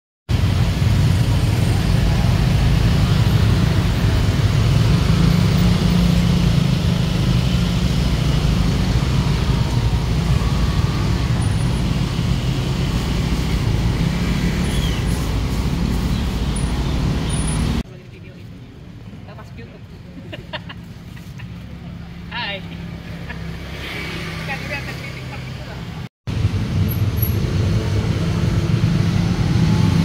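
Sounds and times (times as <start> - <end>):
motorbike and van engines passing: 0.3 - 30.0.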